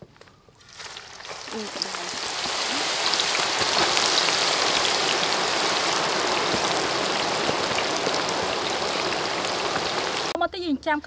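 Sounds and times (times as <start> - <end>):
food deep-frying in oil: 0.6 - 10.4.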